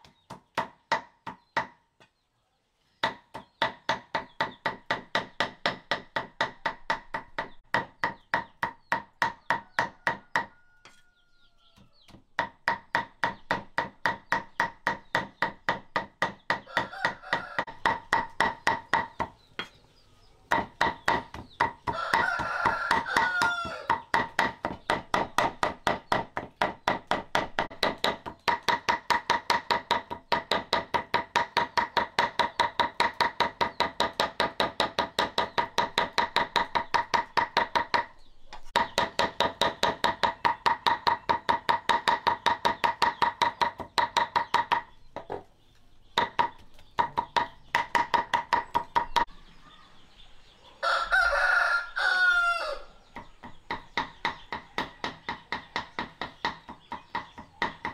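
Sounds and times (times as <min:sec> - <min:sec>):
knife chopping on a board: 0:03.0 - 0:11.0, 0:11.8 - 0:19.8, 0:20.5 - 0:45.4, 0:46.2 - 0:49.3, 0:53.2 - 0:57.9
rooster crowing: 0:09.6 - 0:12.0, 0:16.7 - 0:17.8, 0:21.9 - 0:24.1, 0:50.7 - 0:53.0.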